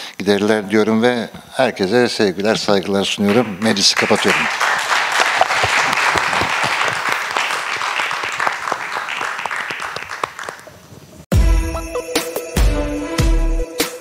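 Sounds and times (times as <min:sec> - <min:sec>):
audience applauding: 0:03.3 - 0:10.8
loud music: 0:11.3 - 0:14.0.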